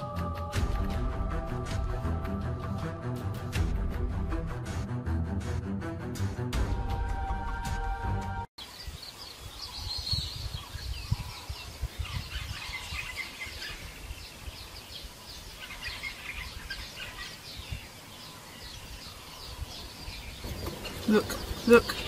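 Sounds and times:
small birds chirping: 0:08.6 - 0:22.0.

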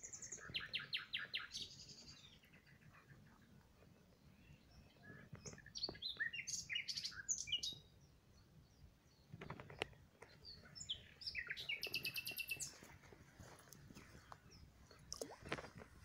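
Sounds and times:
songbirds singing: 0:00.0 - 0:15.4.

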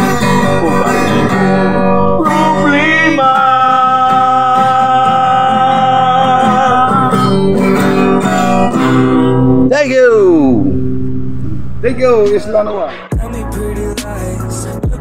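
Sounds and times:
man singing: 0:00.0 - 0:08.8, 0:12.7 - 0:15.0
acoustic guitars strummed: 0:00.0 - 0:15.0.

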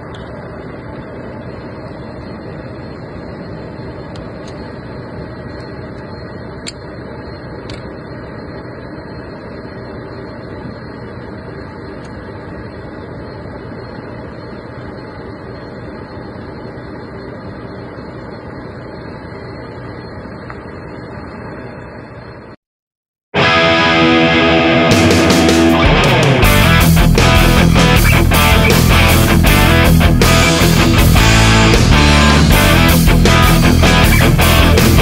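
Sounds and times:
steady machine drone: 0:00.0 - 0:22.6, 0:23.4 - 0:35.0.

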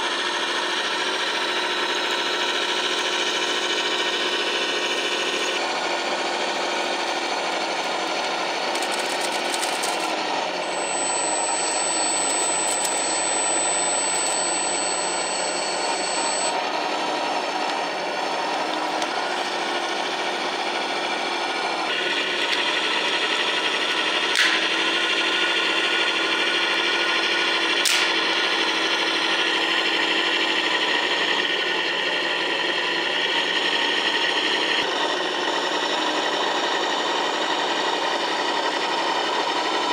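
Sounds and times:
electric motor whine: 0:00.0 - 0:39.9
simulated diesel engine sound: 0:00.0 - 0:39.9.

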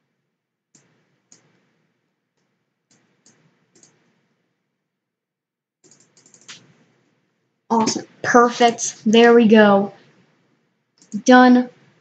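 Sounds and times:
computer mouse clicks: 0:00.7 - 0:01.7, 0:02.4 - 0:04.2, 0:05.8 - 0:06.8, 0:11.0 - 0:11.2.

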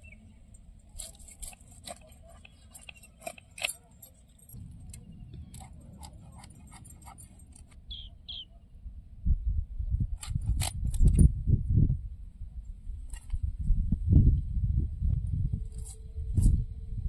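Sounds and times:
bird chirping: 0:00.0 - 0:00.5, 0:07.8 - 0:08.8
fish scales scraping on blade: 0:01.0 - 0:03.8
low gusty rumble: 0:04.3 - 0:17.0.

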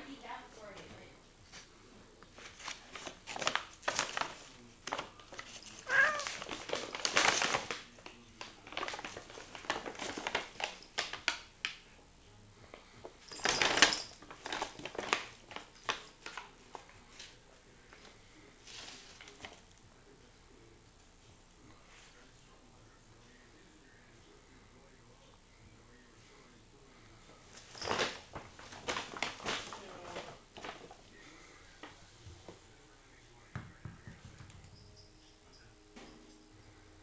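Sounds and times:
paper bag crinkling and rustling: 0:02.4 - 0:11.3, 0:13.3 - 0:17.4, 0:18.0 - 0:19.6, 0:27.5 - 0:31.2.

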